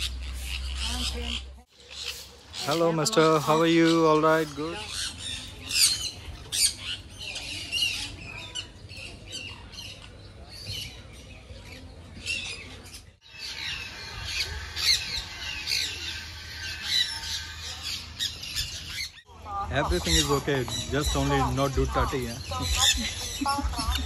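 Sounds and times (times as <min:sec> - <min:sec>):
parrots squawking: 0:13.3 - 0:19.3.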